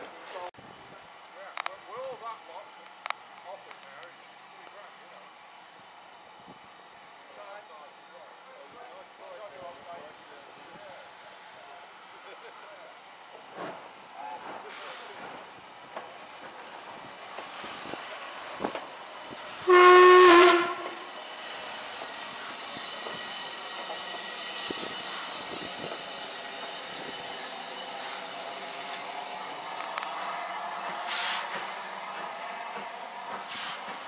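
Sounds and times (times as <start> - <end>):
steam hissing: 13.3 - 34.0
steam locomotive whistle: 19.5 - 21.2.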